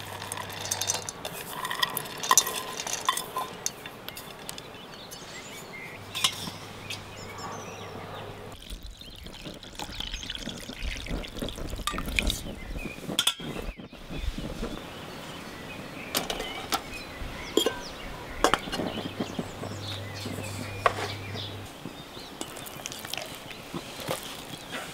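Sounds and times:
metal bowls clinking: 0.0 - 8.6, 13.2 - 13.5, 17.5 - 21.6
water splashing onto peas: 22.4 - 24.6.

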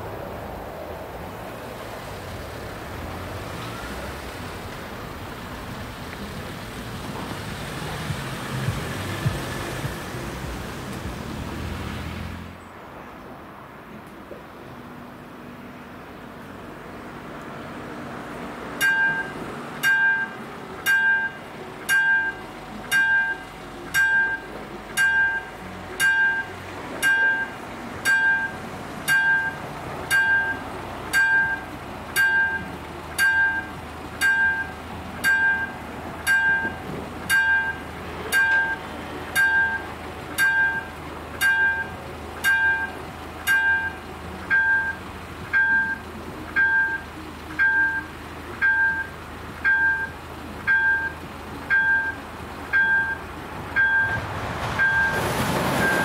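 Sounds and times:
car engine running: 2.0 - 12.6, 16.1 - 56.0
level crossing warning bell ringing: 18.8 - 54.2, 54.8 - 55.2, 55.8 - 56.0.

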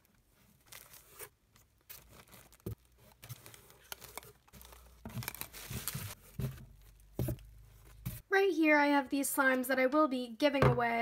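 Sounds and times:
plastic wrapping crinkling: 0.0 - 7.1.

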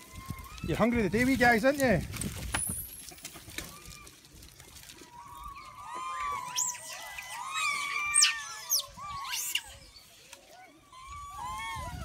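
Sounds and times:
macaques squeaking and crying: 5.3 - 12.0.

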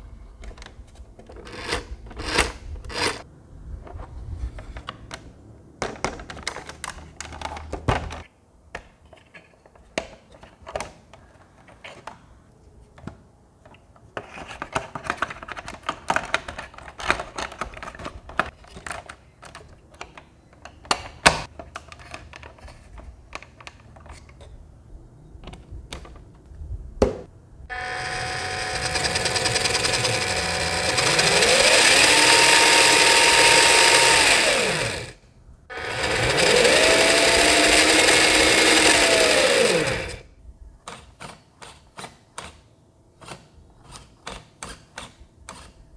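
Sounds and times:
plastic parts clicking and rubbing: 3.9 - 24.6
small electric motor whine: 27.7 - 40.2.

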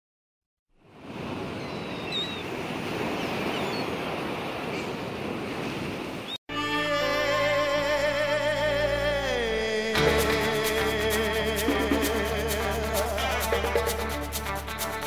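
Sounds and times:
ocean waves rushing: 0.9 - 6.3, 10.0 - 15.0.

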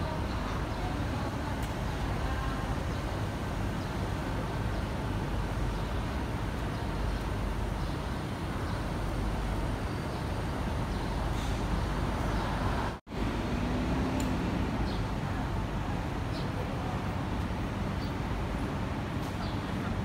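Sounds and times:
city street traffic rumble: 0.0 - 20.0.

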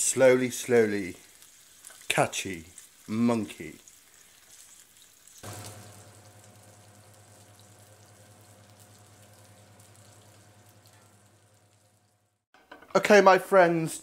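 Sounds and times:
sausages sizzling in oil: 0.0 - 12.5
steady low hum: 5.4 - 12.2.

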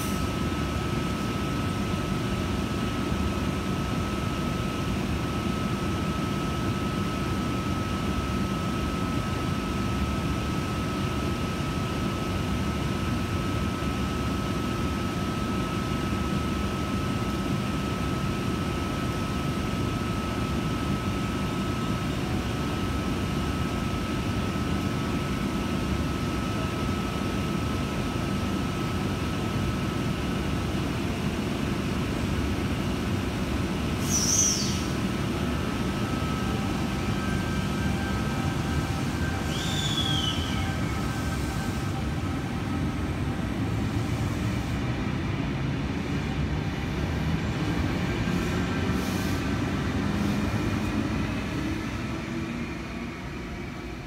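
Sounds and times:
thin steady whine: 0.0 - 54.0
train equipment hum and rumble: 0.0 - 54.0
high falling squeal: 39.3 - 41.8.

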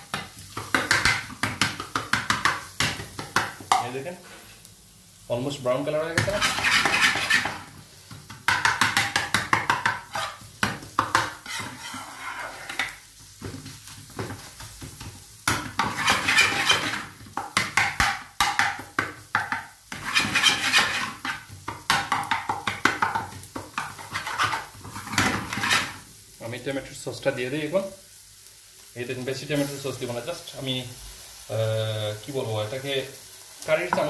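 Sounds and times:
onions frying: 0.0 - 34.0
spatula scraping frying pan: 6.2 - 7.8, 8.5 - 13.0, 15.5 - 18.8, 19.4 - 26.0.

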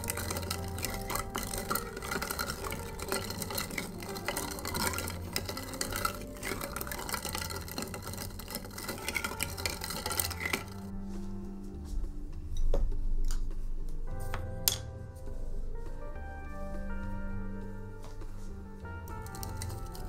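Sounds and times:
ice and spoon clinking glass: 0.0 - 10.9, 19.1 - 20.0.

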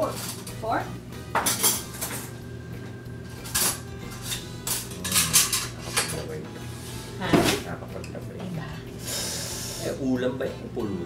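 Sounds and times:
metal utensils clinking on dishes: 0.0 - 0.5, 1.4 - 2.3, 3.4 - 6.4.

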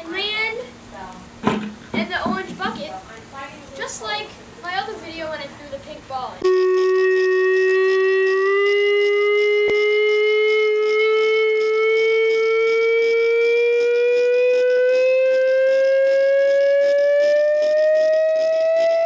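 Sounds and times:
rising siren-like tone: 6.4 - 19.0.

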